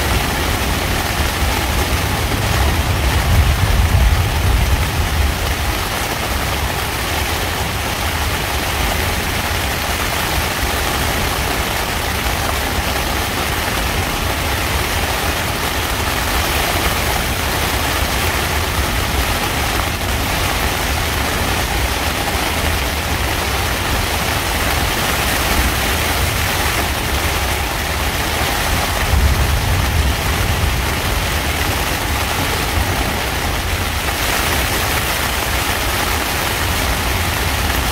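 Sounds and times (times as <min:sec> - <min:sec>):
rain on tent fabric: 0:00.0 - 0:37.9
low thunder rumble: 0:01.4 - 0:06.0, 0:28.3 - 0:33.9.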